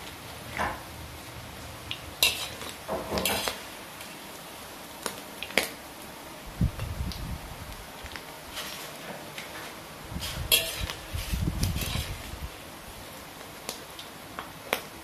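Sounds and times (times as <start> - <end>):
oil sizzling: 0.0 - 15.0
strainer scraping and clinking on wok: 10.2 - 12.3.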